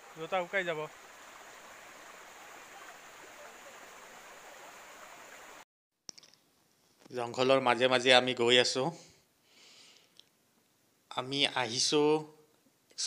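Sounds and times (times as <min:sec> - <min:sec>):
stream flowing over rocks: 0:00.0 - 0:05.6.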